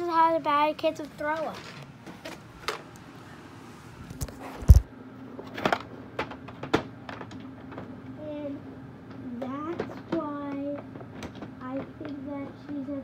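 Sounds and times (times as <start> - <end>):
faint steady hum: 0.0 - 13.0
handling knocks and clicks: 4.2 - 8.0, 9.1 - 13.0.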